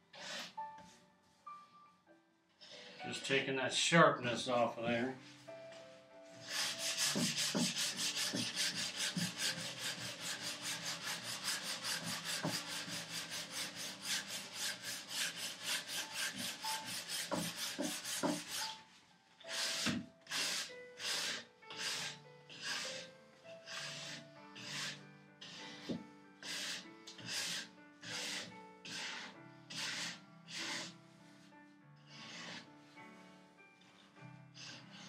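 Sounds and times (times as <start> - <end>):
sanding strokes on wood: 6.4 - 18.8, 19.5 - 23.1, 23.7 - 30.9.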